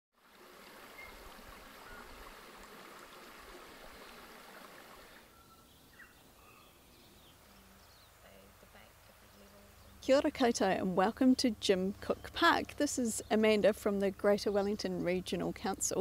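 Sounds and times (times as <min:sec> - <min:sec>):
flowing river water: 0:00.2 - 0:10.8.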